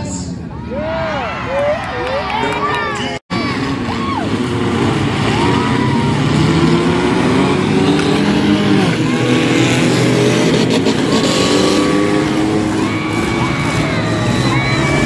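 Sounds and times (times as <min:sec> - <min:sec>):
car engines revving: 0:02.3 - 0:15.0
cars ramming each other: 0:03.4 - 0:15.0.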